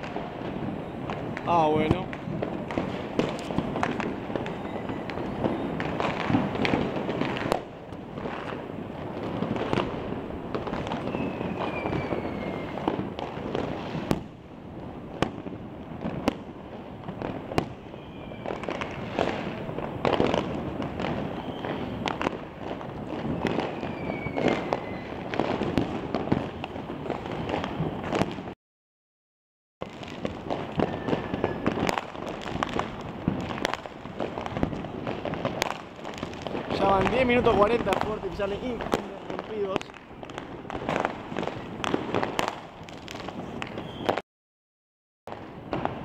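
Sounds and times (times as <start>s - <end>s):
firecracker bangs: 0.0s - 14.4s, 15.2s - 28.6s, 29.8s - 44.2s
distant fireworks crackle and rumble: 0.0s - 28.6s, 29.8s - 44.2s, 45.3s - 46.0s
falling firework whistle: 3.2s - 6.8s, 10.8s - 14.2s, 17.6s - 20.2s, 20.9s - 22.3s, 23.1s - 28.6s, 30.2s - 33.8s, 43.2s - 44.2s.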